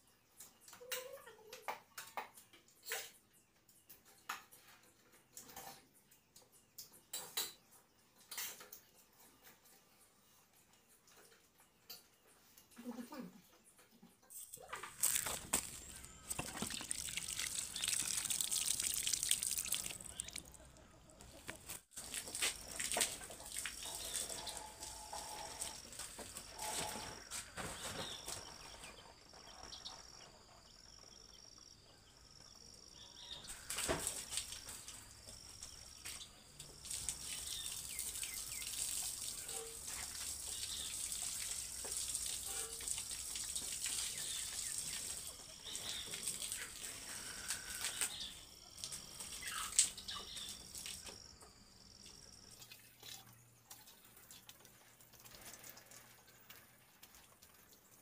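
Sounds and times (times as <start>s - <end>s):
hose water spraying on concrete: 14.6s - 27.6s, 33.5s - 51.2s.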